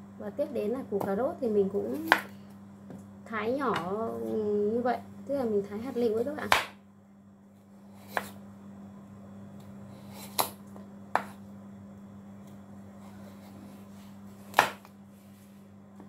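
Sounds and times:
knife slicing carrot: 8.0 - 8.4.

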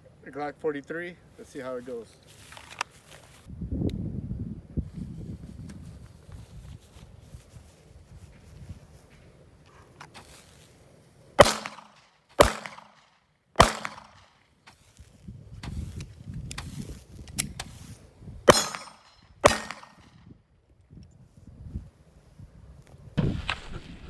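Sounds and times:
pistol gunshots: 11.4 - 14.4, 18.5 - 20.2
fizz of burning firework ball: 23.2 - 24.0.

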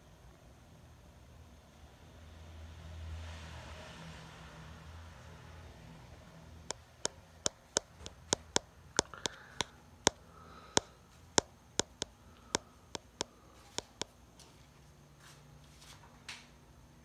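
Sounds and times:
fan ticking: 6.7 - 14.2.

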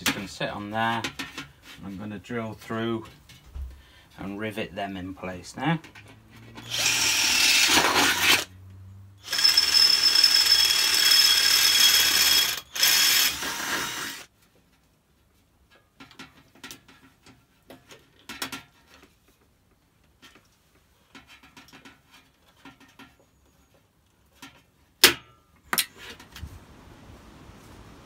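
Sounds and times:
drill squealing through sheet metal: 6.6 - 8.5, 9.2 - 14.3.

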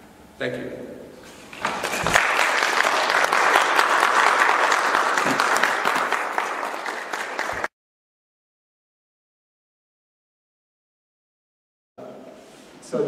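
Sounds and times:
audience applause: 1.6 - 7.7.

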